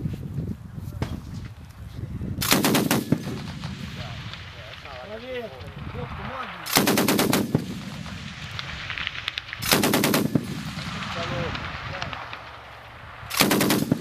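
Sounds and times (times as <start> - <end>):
heavy machine gun bursts: 6.7 - 8.0, 9.6 - 10.8, 13.3 - 14.0.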